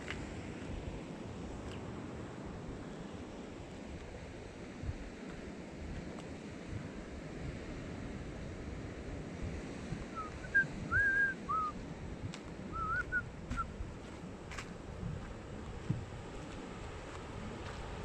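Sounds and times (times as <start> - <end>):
wind rumble on microphone: 0.0 - 18.0
whistled notes: 10.2 - 11.7, 12.8 - 13.7.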